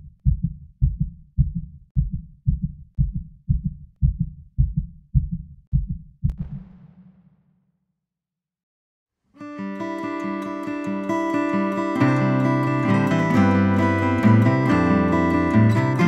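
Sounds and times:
heartbeat double thumps: 0:00.0 - 0:07.4.

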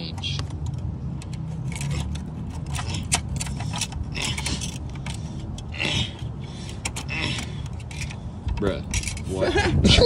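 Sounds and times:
clicks and clinks of handling: 0:06.7 - 0:09.3.

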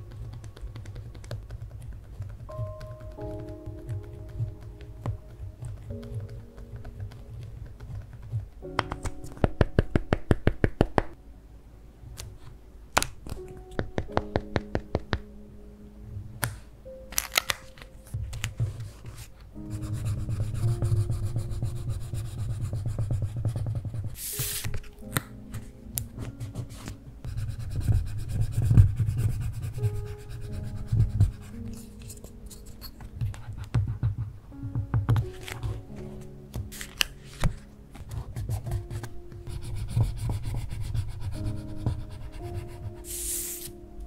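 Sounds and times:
soft background music: 0:00.0 - 0:44.0
pen writing on paper: 0:18.6 - 0:24.7, 0:26.2 - 0:34.3, 0:38.0 - 0:43.7.

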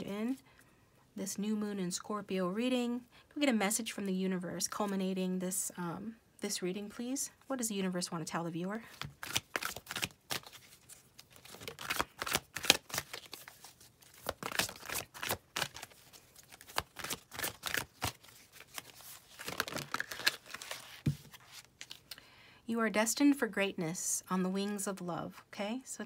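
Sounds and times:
cards being shuffled: 0:08.9 - 0:22.2.

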